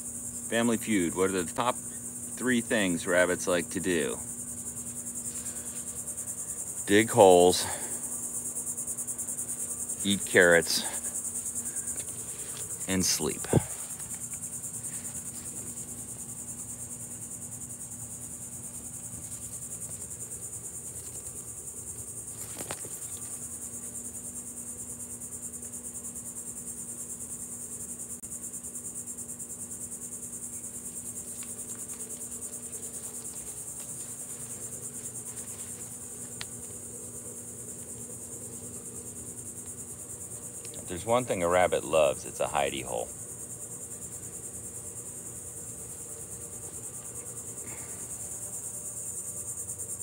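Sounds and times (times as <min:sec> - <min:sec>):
insect chorus trilling: 0:00.0 - 0:50.0
faint ticks: 0:35.3 - 0:36.8.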